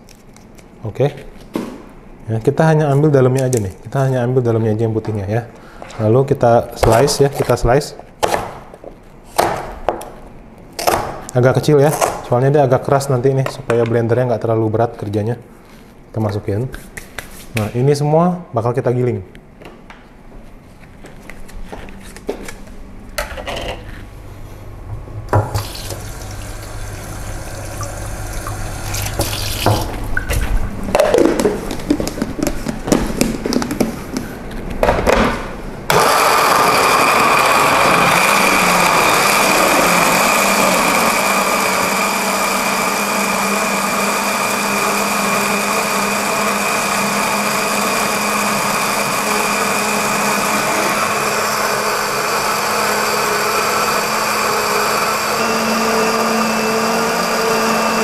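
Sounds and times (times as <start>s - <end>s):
blender motor grinding: 35.9s - 58.0s.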